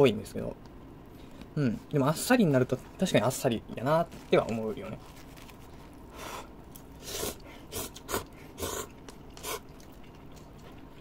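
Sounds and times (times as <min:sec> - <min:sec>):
person slurping and chewing noodles: 0:06.9 - 0:11.0.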